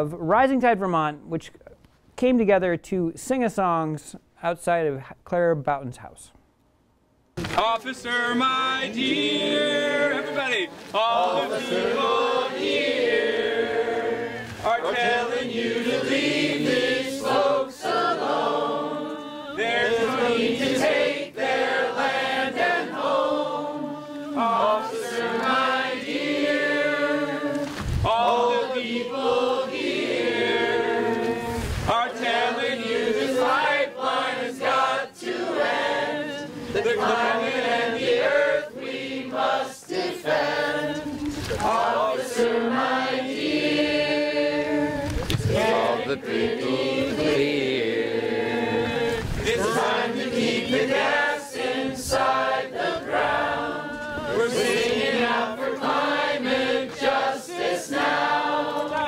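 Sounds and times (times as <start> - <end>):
group singing without instruments: 7.5 - 59.0.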